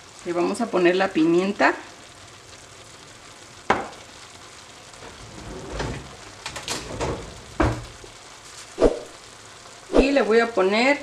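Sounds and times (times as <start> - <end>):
meat sizzling in a frying pan: 0.0 - 11.0
knocks and clatters: 5.0 - 8.0.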